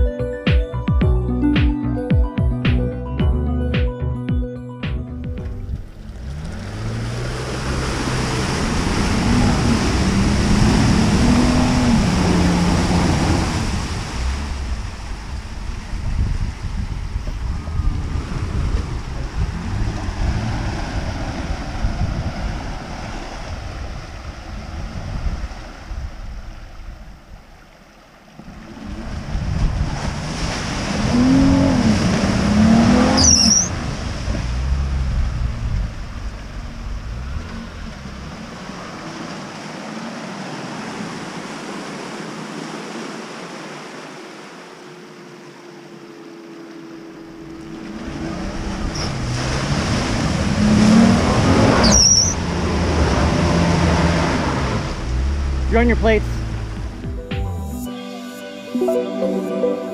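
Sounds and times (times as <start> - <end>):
tyres churning through mud: 5.4 - 26.0, 28.4 - 45.3, 47.1 - 57.0
engine revving: 5.5 - 15.6, 17.5 - 23.6, 28.6 - 40.8, 47.4 - 57.0.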